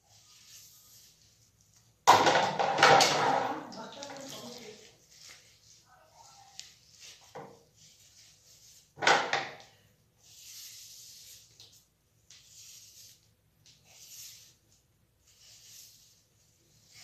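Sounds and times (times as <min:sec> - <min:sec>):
comb drawn through wet hair: 0:03.8 - 0:08.9.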